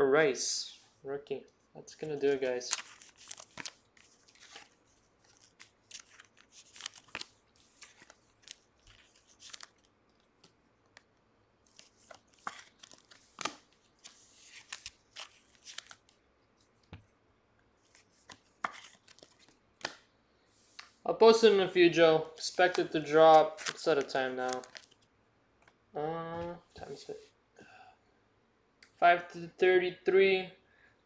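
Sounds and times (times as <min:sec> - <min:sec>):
cards and wrappers crinkling: 0:02.0 - 0:16.9, 0:17.8 - 0:20.0, 0:22.4 - 0:25.1.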